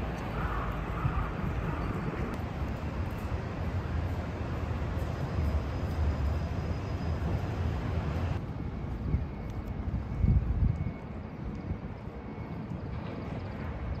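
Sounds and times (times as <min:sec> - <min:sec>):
vehicle rumble and hiss: 0:02.3 - 0:10.1.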